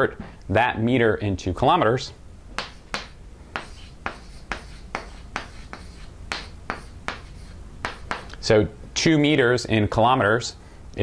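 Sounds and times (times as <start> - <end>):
chalk tapping and scraping: 2.6 - 8.5.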